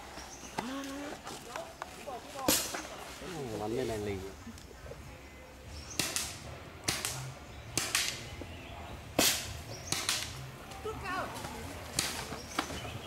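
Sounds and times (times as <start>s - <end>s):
air gun shots popping: 2.4s - 2.8s, 5.9s - 8.3s, 9.1s - 10.4s, 11.9s - 12.8s.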